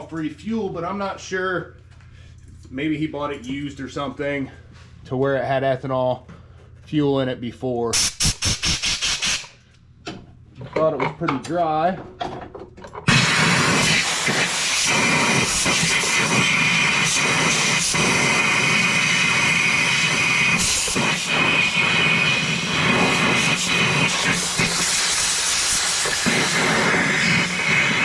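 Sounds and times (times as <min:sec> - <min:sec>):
compressed air hissing: 0:08.0 - 0:09.6, 0:13.1 - 0:28.0.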